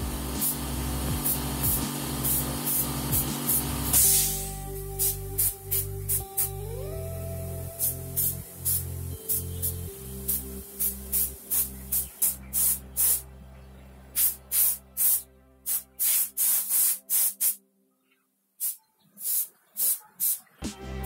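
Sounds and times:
steady low hum: 0.0 - 15.6
airbrush hissing bursts: 0.1 - 6.5, 7.8 - 13.2, 14.2 - 17.6, 18.6 - 20.5.

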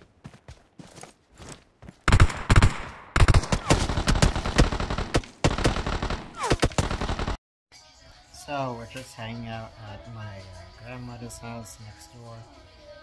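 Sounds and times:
video game gunfire: 2.1 - 7.4.

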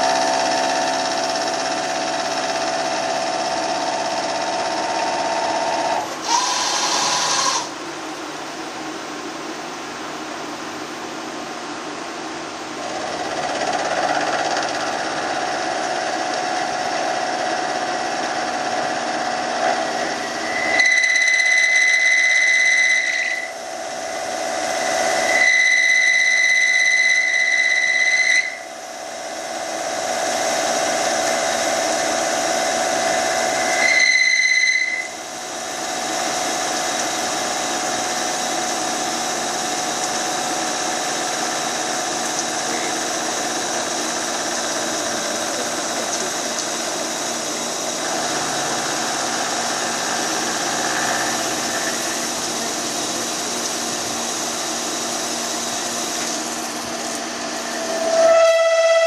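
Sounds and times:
machine cutting and spindle noise: 0.0 - 8.0, 12.6 - 59.0
high steady whine: 0.0 - 59.0.

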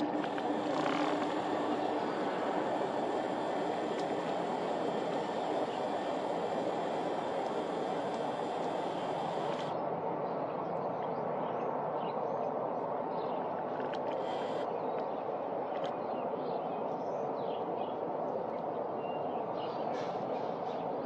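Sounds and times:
outdoor rushing noise: 0.0 - 9.8.

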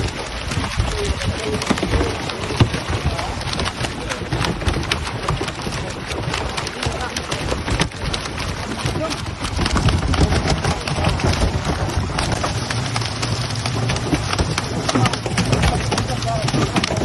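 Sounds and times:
fish thrashing and splashing: 0.0 - 17.0.

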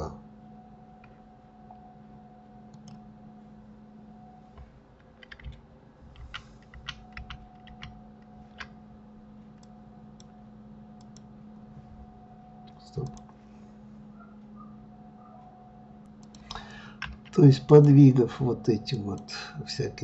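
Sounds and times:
faint low hum: 0.0 - 20.0
keyboard and mouse clicks: 5.1 - 5.6, 6.2 - 8.8, 16.2 - 17.4.

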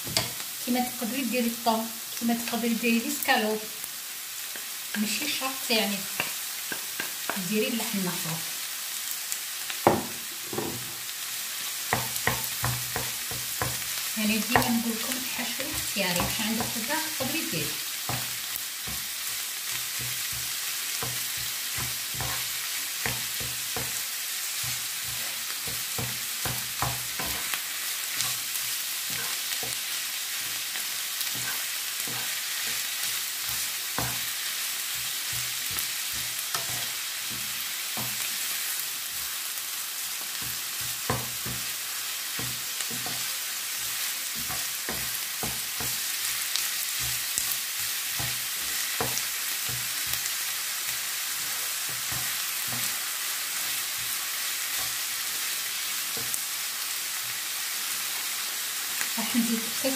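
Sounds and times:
meat sizzling in frying pan: 0.0 - 59.9
wooden spoon scraping pan: 24.6 - 30.6, 31.2 - 34.3, 34.9 - 37.4.

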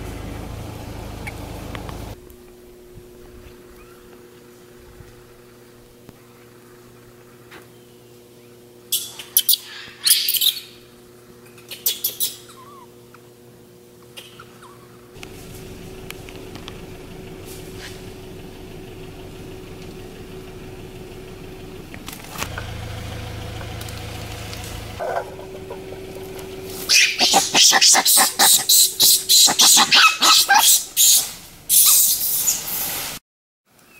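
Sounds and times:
steady low hum: 0.0 - 10.0, 12.4 - 31.8
outdoor background noise: 0.0 - 33.9
high animal calls: 25.0 - 32.8.

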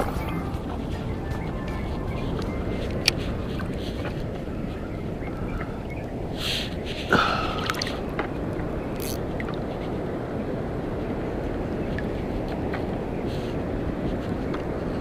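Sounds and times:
shallow sea water washing: 0.0 - 15.0
wind: 0.0 - 15.0
sharp water splash: 7.1 - 8.2
small clicks: 9.0 - 9.2.

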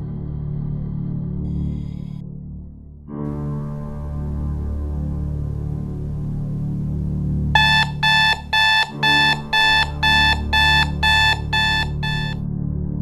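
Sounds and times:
alarm clock beeping: 7.6 - 12.4.

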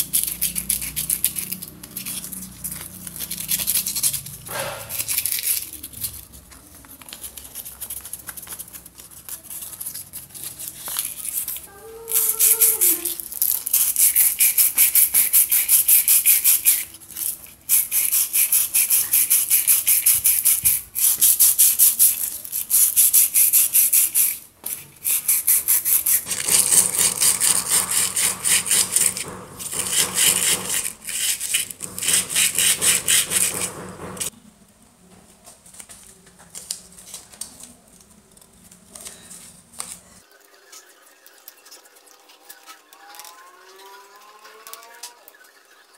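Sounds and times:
sandpaper rasping on wood: 10.6 - 16.9, 17.7 - 34.3.

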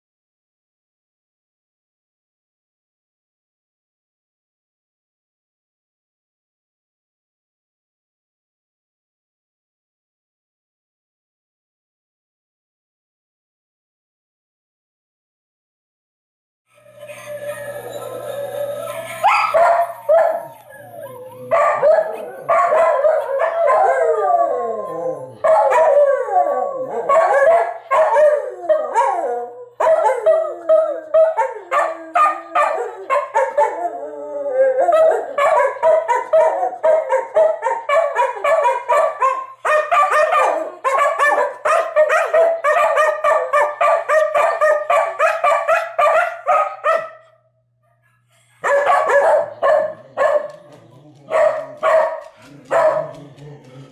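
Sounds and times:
dogs howling: 16.8 - 47.2, 48.6 - 53.9
recorded dog howling: 17.0 - 47.2, 48.6 - 53.9.

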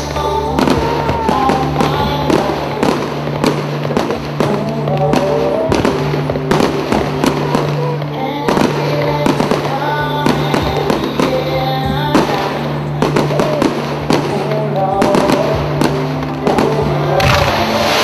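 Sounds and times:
firework shells bursting: 0.0 - 18.0
loud music: 0.0 - 18.0.

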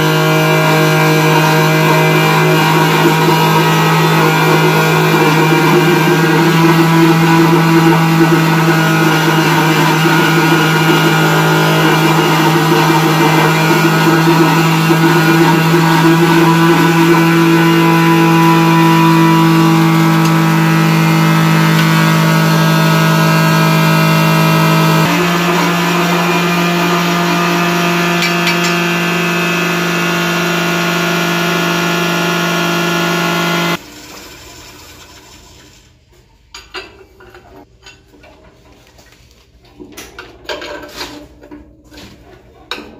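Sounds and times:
vibration machine drone: 0.0 - 33.8.

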